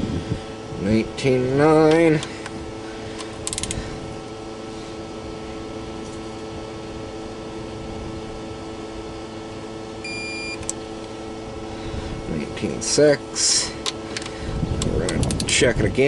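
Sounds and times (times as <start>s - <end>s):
steady background hum: 0.0s - 16.0s
ratchet clicks: 3.4s - 3.8s
torque wrench high beep: 10.0s - 10.7s.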